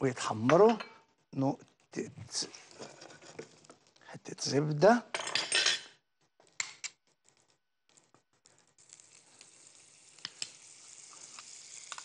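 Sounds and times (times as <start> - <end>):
mushrooms sizzling in frying pan: 8.8 - 12.0.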